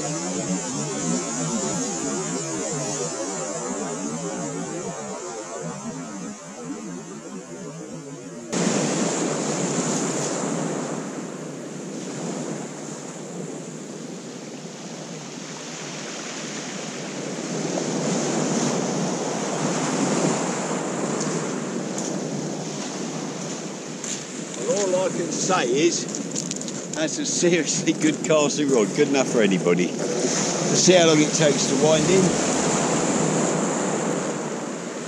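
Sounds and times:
wind on microphone: 0:08.6 - 0:35.0
waves breaking on shingle: 0:21.2 - 0:34.2.

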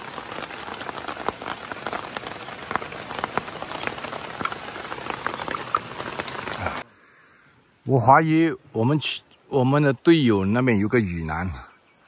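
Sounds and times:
rain ticking on tent fabric: 0:00.0 - 0:06.8.

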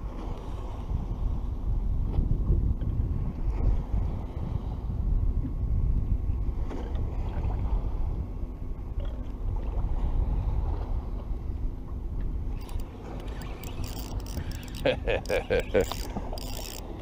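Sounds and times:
wind buffeting microphone: 0:00.6 - 0:08.4.

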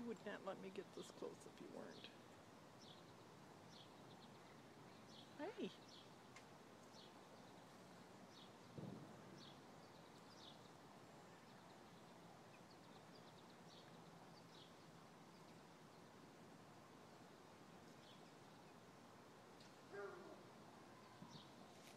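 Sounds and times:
soft low thump: 0:08.8 - 0:09.2.

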